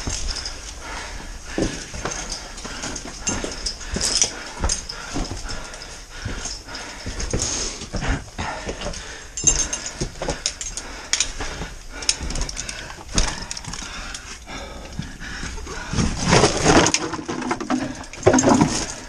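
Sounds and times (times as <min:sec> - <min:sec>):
person breathing hard: 0:00.0 - 0:19.0
body and gear scraping rock: 0:15.4 - 0:19.0.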